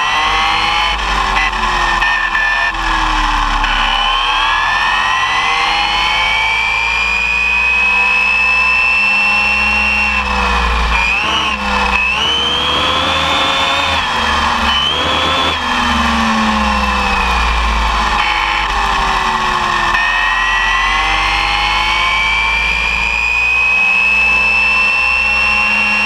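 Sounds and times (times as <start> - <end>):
electric motor whine: 0.0 - 26.0
tyres rumbling on asphalt: 8.6 - 23.7.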